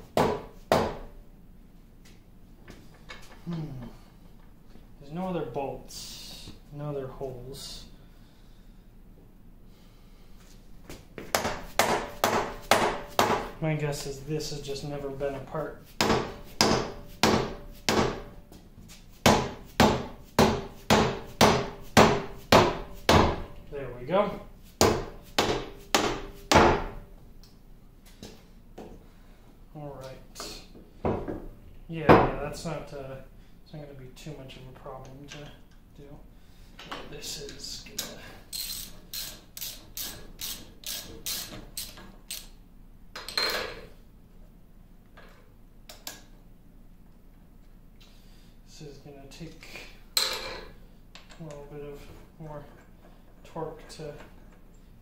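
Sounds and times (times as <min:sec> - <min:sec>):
socket ratchet wrench ratcheting: 0:38.5 - 0:42.5.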